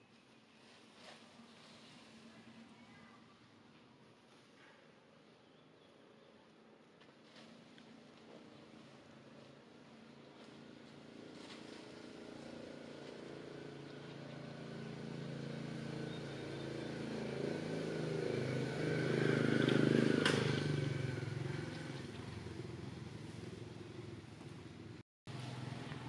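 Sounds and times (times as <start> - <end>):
vehicle engine passing by: 7.3 - 26.0.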